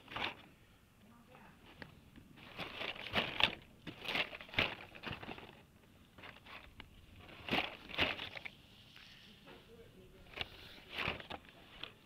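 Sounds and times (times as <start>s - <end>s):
plastic packs clacking and rustling: 0.0s - 0.5s, 1.6s - 8.6s, 10.2s - 12.0s.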